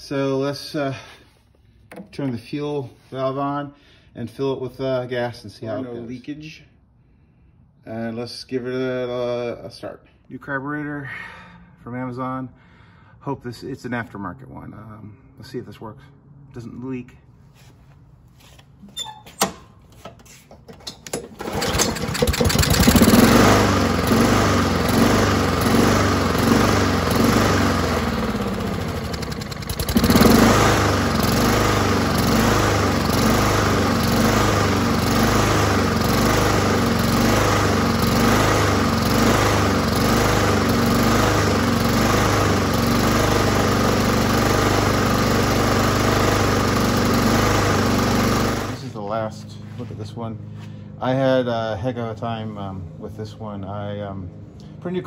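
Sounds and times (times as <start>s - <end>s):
lawnmower engine surging: 19.4s - 50.5s.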